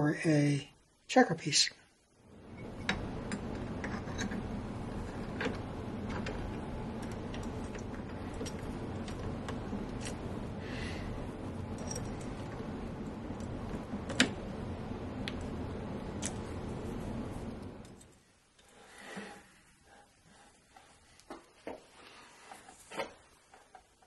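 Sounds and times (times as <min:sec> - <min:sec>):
steady low hum: 0:02.0 - 0:18.9.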